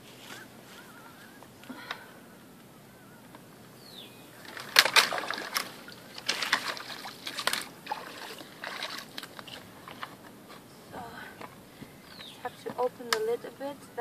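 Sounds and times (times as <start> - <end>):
water splashing and sloshing: 4.4 - 10.2.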